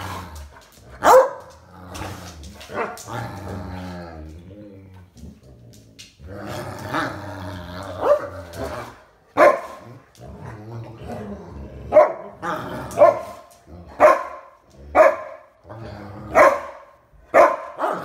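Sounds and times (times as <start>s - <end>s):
dogs growling: 0.0s - 16.9s
dogs barking: 1.0s - 1.5s, 8.0s - 8.3s, 9.3s - 9.8s, 11.9s - 13.4s, 14.0s - 15.5s, 16.3s - 18.0s.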